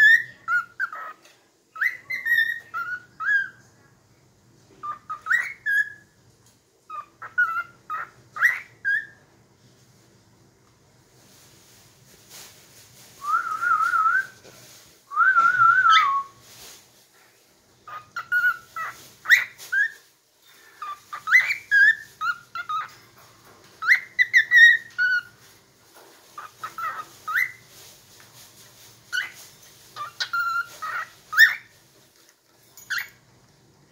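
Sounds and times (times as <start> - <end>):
cockatiel whistling: 1.8 - 3.6, 4.8 - 6.0, 6.9 - 9.2, 15.1 - 16.4, 17.9 - 20.0, 20.8 - 22.9, 23.8 - 25.4, 26.4 - 27.6, 29.1 - 29.4, 30.0 - 31.7.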